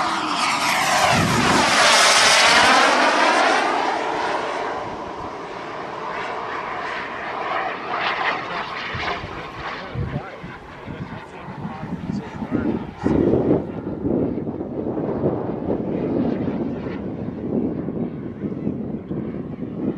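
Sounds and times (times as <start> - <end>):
model jet engine rush: 0.0 - 19.9.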